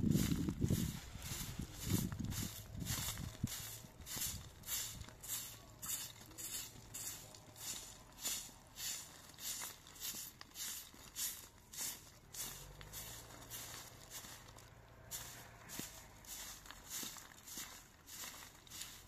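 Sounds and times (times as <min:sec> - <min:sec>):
crunching footsteps: 0:00.0 - 0:19.0.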